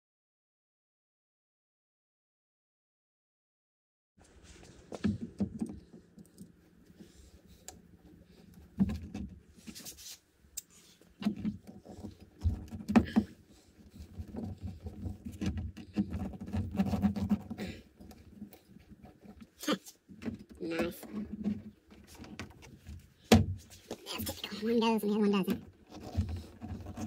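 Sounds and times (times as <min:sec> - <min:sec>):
clicks taps and scraping on door panel: 0:11.2 - 0:19.5, 0:25.6 - 0:27.0.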